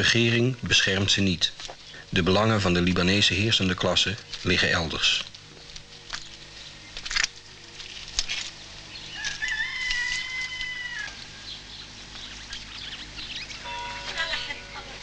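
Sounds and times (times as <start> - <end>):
rooster crowing: 9.0 - 11.7.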